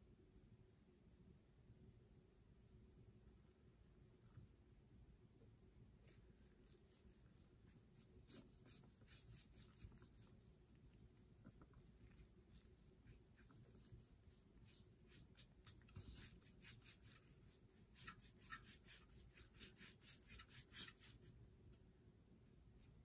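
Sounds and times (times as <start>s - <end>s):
sponge brush rubbing on metal tray: 5.8s - 21.4s.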